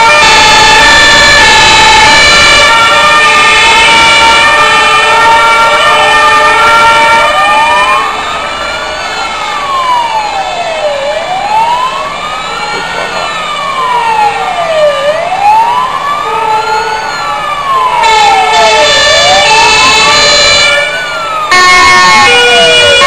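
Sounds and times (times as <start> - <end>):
steady siren tones: 0.0 - 23.0
wailing fire engine siren: 0.0 - 23.0.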